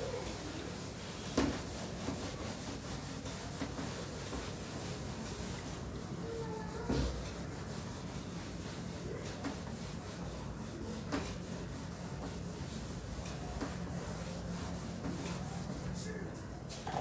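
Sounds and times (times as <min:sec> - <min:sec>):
cloth rubbing whiteboard: 0:00.0 - 0:16.2.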